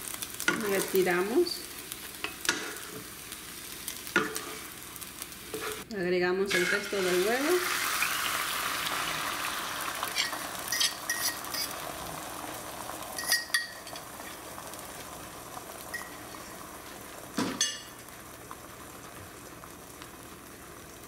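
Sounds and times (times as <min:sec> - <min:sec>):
eggs sizzling in oil: 0:00.0 - 0:05.9, 0:06.5 - 0:21.0
kitchenware clatter: 0:10.1 - 0:11.8, 0:13.2 - 0:14.1, 0:17.4 - 0:17.9.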